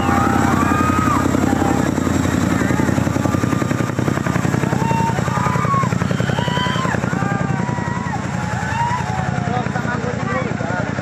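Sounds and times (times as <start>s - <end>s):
crowd shouting: 0.0s - 10.0s
helicopter rotor thudding: 0.0s - 11.0s.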